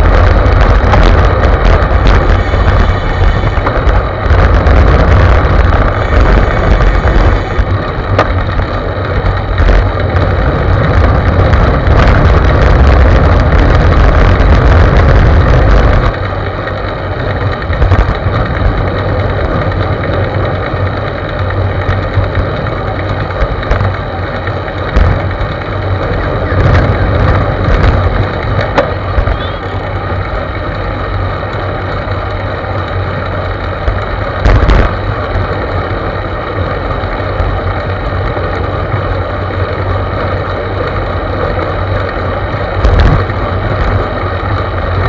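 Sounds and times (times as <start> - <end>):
tyre and road noise: 0.0 - 45.0
wind buffeting microphone: 0.0 - 45.0.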